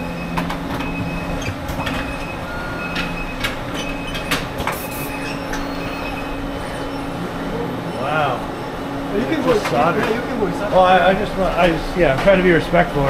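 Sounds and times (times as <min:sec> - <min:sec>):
machinery clicks and clacks: 0:00.0 - 0:06.2, 0:09.2 - 0:10.7, 0:11.5 - 0:13.0
factory machinery hum: 0:00.0 - 0:13.0.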